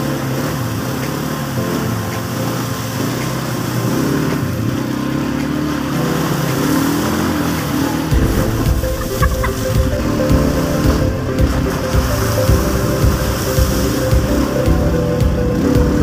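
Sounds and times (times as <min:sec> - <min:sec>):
atv engine revving: 0:03.0 - 0:09.4
heavy low rumble: 0:08.1 - 0:16.0.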